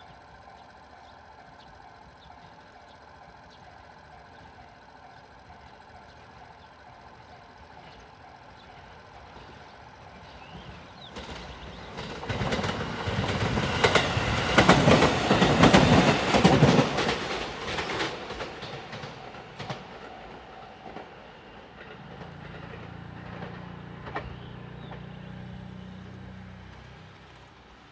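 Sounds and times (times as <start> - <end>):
level crossing warning bells: 0.0 - 11.4
electric train passing: 0.0 - 27.9.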